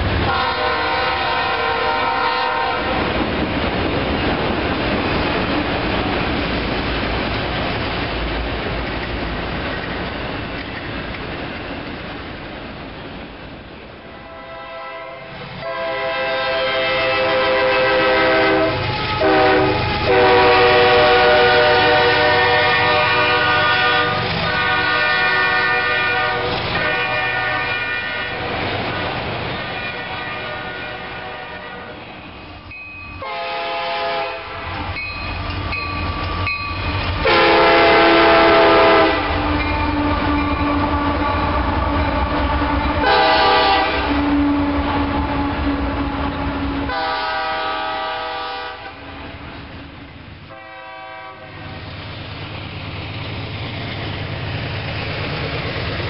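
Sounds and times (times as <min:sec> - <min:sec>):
freight train rumble and wheel clatter: 0:00.0 - 0:56.0
locomotive air horn blasts: 0:00.2 - 0:03.1, 0:14.1 - 0:28.6, 0:29.6 - 0:32.1, 0:33.2 - 0:34.9, 0:37.2 - 0:45.7, 0:46.9 - 0:49.1, 0:50.5 - 0:51.8.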